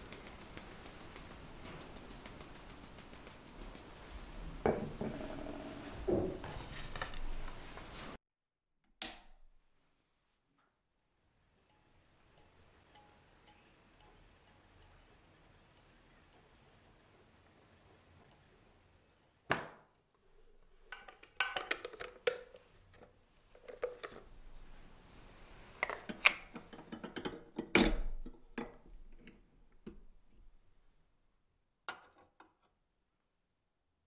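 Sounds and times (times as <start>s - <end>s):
short high beep: 17.7s - 18.1s.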